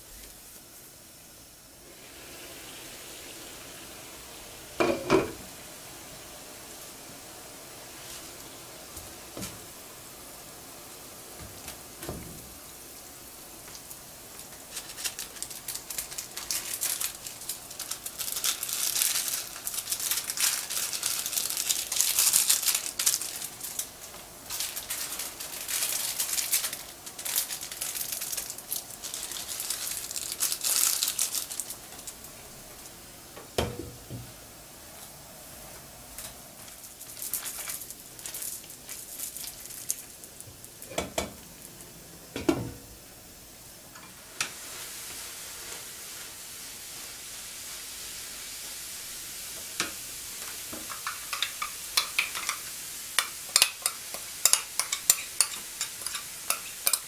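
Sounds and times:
faint hiss of hot water: 0.0 - 57.0
plastic packets crinkling: 14.4 - 32.4, 36.6 - 40.9
spatula stirring noodles in pan: 44.0 - 57.0.

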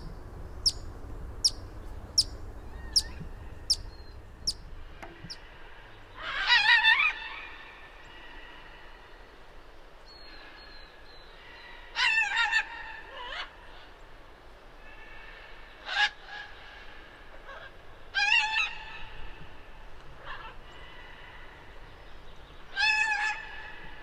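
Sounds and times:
bird warbling call: 0.0 - 5.5.

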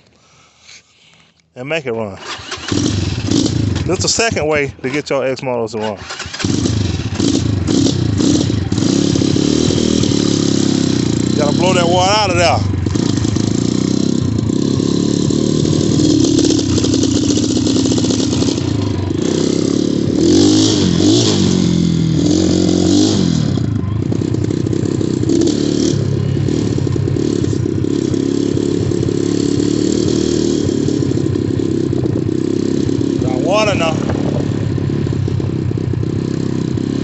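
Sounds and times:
dirt bike engine revving: 2.2 - 5.2, 5.8 - 37.0.

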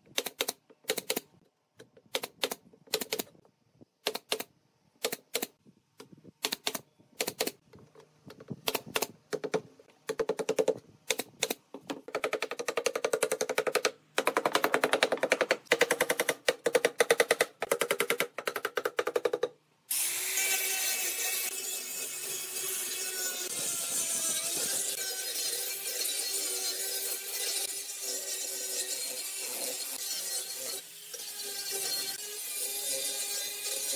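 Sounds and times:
nail gun firing: 8.6 - 19.5
wooden mallet rapping wood: 11.8 - 19.5.

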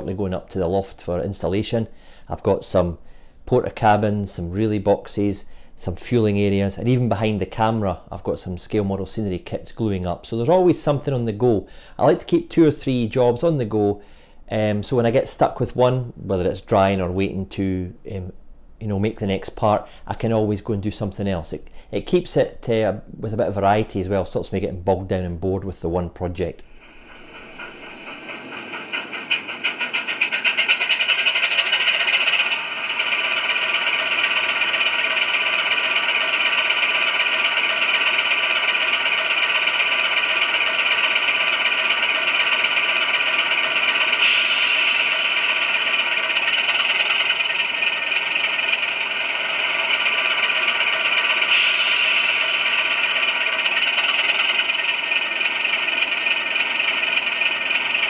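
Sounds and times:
model train diesel engine sound: 0.0 - 58.0
short hisses: 44.2 - 45.9, 51.4 - 53.2.

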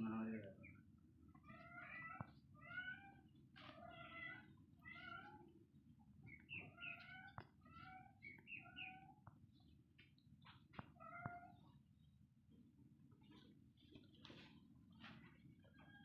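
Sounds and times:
kittens meowing: 1.3 - 5.6, 6.3 - 9.2, 10.8 - 11.6.

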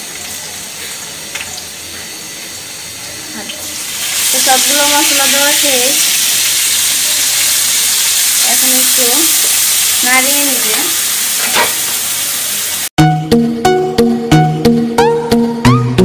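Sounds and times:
food sizzling in hot oil: 0.0 - 12.9
spatula scraping pan: 10.6 - 12.1.

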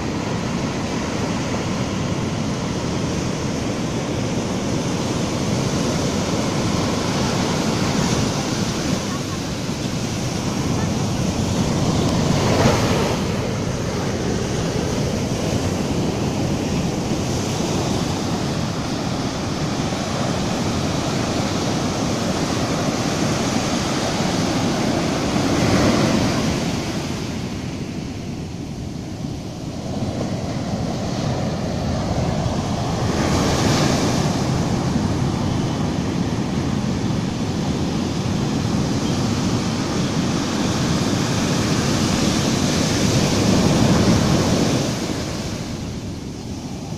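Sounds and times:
waves breaking on a beach: 0.0 - 46.9.

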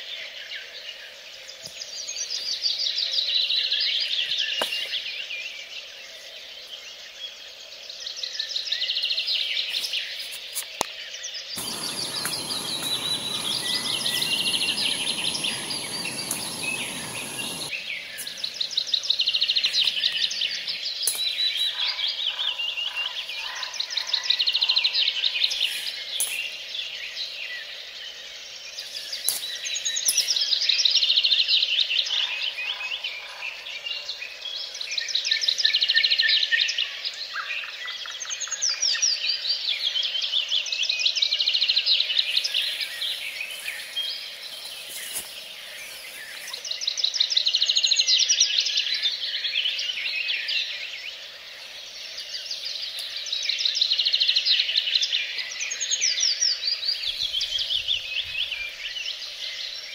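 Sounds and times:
gas stove burner hissing: 11.6 - 18.8
songbird trilling: 11.6 - 22.9.

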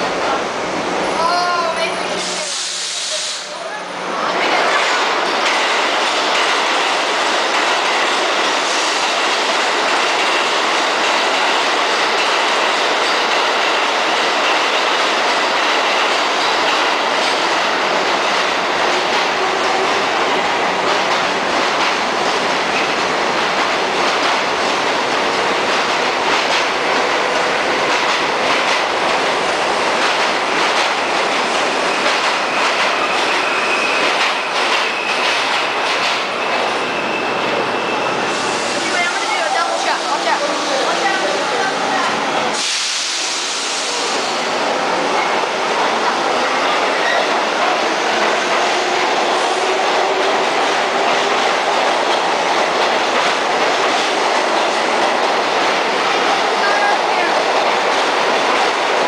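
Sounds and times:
steel wheels on rail: 0.0 - 59.0
high wheel squeal: 32.4 - 35.4, 36.3 - 39.5.

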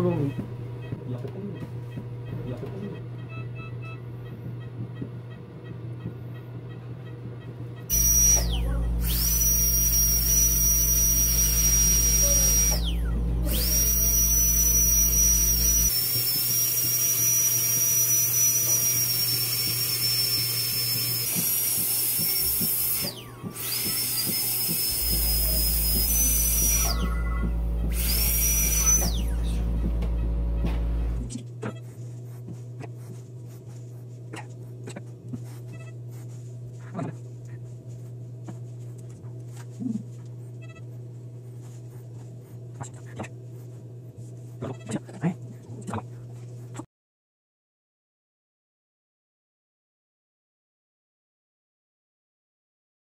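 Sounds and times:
dental drill whining: 7.9 - 31.3.

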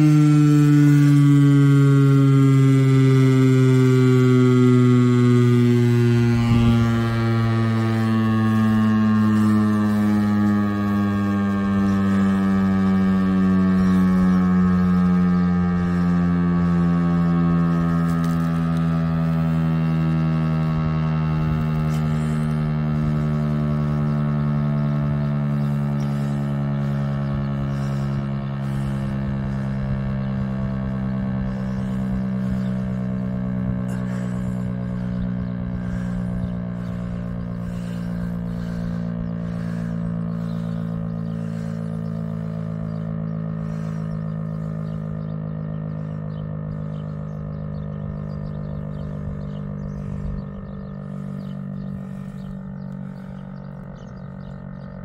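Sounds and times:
warning siren steady low tone: 0.0 - 55.0.

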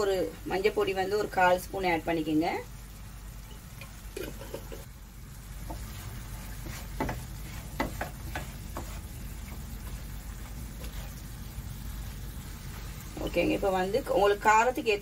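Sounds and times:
low steady hum: 0.0 - 15.0
wooden spatula scraping pan: 5.7 - 10.0.

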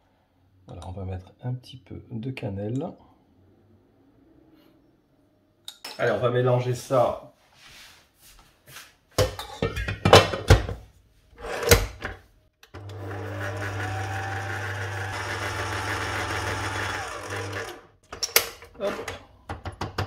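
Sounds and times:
stand mixer motor running: 12.8 - 17.9.

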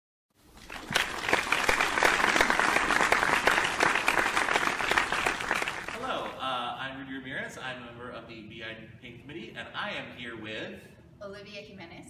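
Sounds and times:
crowd applause: 0.6 - 6.4.

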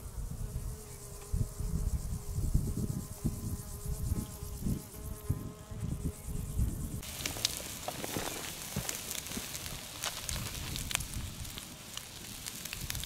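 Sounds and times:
insect buzzing: 0.0 - 13.0
low gusty rumble: 1.4 - 13.0
steaks sizzling on stone: 7.0 - 13.0
wood fire crackling: 7.0 - 13.0.

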